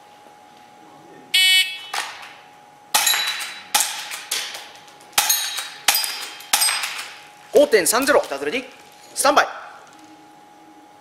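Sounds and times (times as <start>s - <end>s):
airsoft pistol shots: 2.9s - 7.2s
bbs clanging on steel targets: 2.9s - 7.3s.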